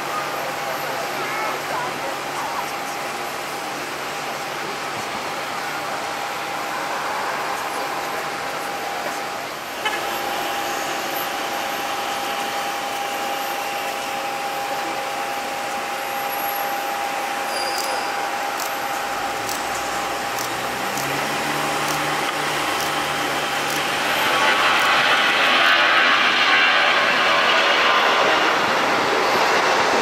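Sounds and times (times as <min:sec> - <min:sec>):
high jet whine: 0:00.0 - 0:30.0
jet engines roaring: 0:00.0 - 0:30.0
low engine tones: 0:17.0 - 0:29.7.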